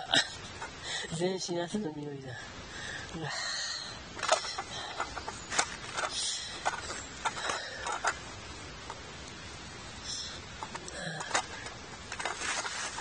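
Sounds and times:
clicks crackles and rustles of gear: 4.1s - 9.4s, 10.5s - 13.0s.

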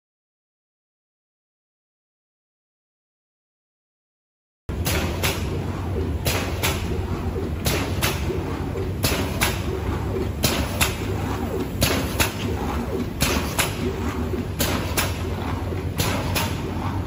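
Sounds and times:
machine humming: 4.7s - 17.0s
sharp pneumatic clacks: 4.7s - 17.0s.

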